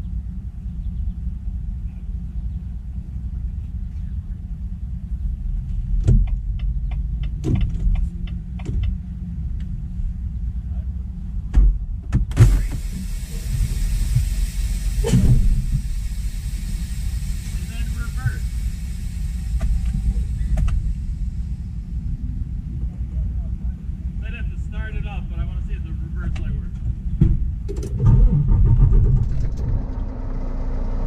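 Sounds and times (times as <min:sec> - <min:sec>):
diesel engine idling: 0:00.0 - 0:31.0
air hiss: 0:12.4 - 0:22.8
thumps: 0:27.2 - 0:30.0.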